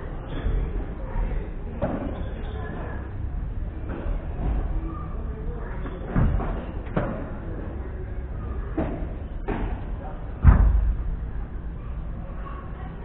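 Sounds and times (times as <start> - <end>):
deep thud: 10.4 - 11.2.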